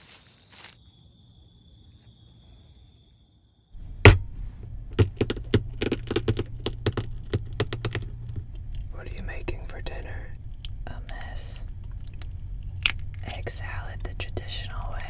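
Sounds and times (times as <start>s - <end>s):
eggshell crackling: 3.8s - 15.0s
low hum: 3.8s - 15.0s
faint high whine: 6.2s - 15.0s.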